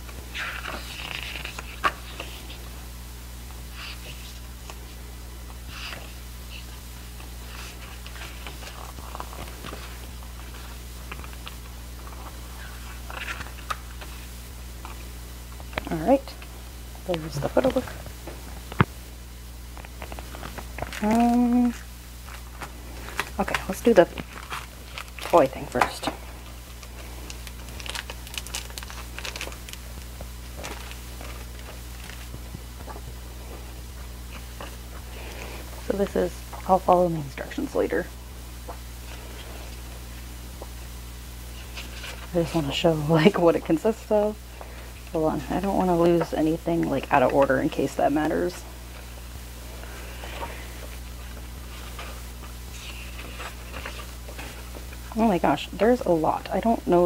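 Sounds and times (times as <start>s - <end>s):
photo book pages turning: 0.0s - 2.7s, 5.8s - 15.0s, 19.7s - 36.7s, 41.5s - 42.6s, 49.8s - 55.1s
steady low hum: 0.0s - 57.0s
plastic packaging crinkling: 19.7s - 36.6s, 49.8s - 55.1s.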